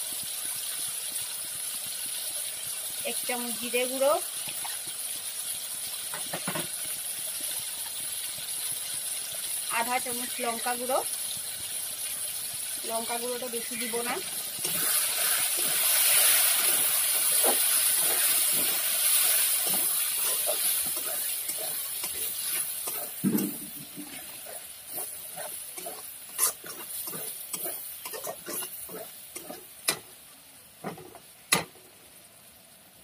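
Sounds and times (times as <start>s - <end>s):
food sizzling in oil: 0.0s - 33.0s
metal spatula scraping pan: 13.8s - 30.0s.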